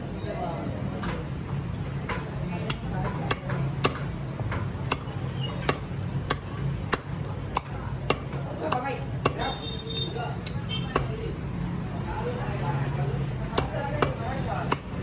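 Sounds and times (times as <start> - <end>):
cleaver chopping on wooden block: 2.0 - 9.6, 10.4 - 11.2, 13.5 - 15.0.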